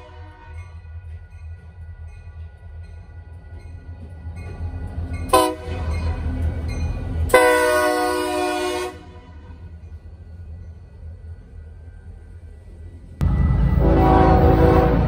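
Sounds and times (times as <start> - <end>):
locomotive air horn blasts: 0.0 - 0.6, 5.3 - 5.9, 7.3 - 9.4, 13.8 - 15.0.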